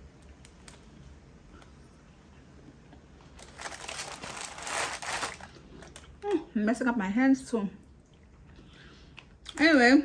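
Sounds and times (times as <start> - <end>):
food packaging crinkling: 3.3 - 6.2.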